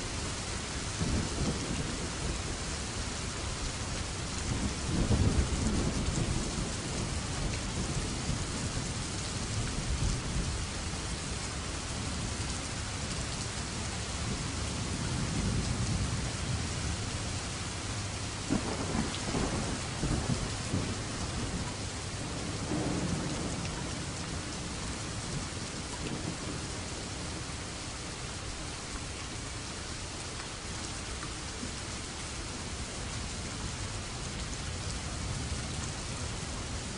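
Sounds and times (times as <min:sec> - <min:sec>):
heavy rain falling: 0:00.0 - 0:36.9
thunder rolling: 0:18.5 - 0:25.4.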